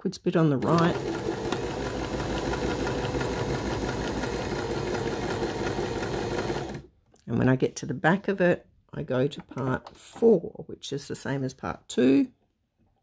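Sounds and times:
sewing machine running: 0.6s - 6.9s.

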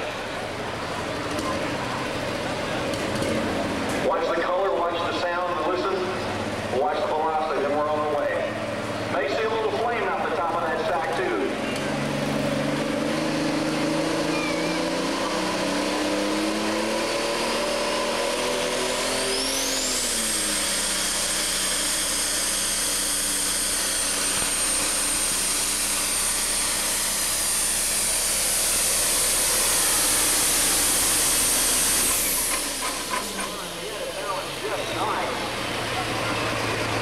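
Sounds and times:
diesel engine at full power: 0.0s - 37.0s
high whine: 13.8s - 37.0s.

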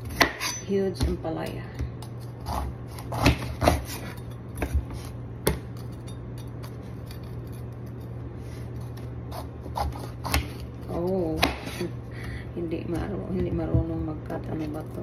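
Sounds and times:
knife cutting on cutting board: 2.4s - 5.2s, 8.6s - 10.6s.

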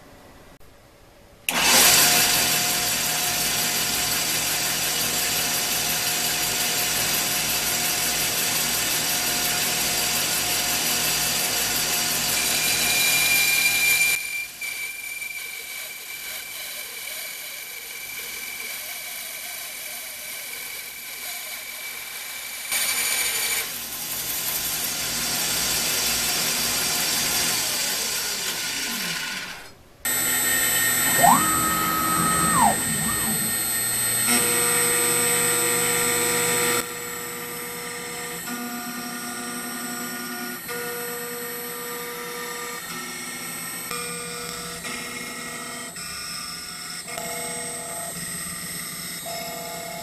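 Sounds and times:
bandsaw cutting aluminum: 30.1s - 34.0s
router milling with whining tones: 30.1s - 36.8s.

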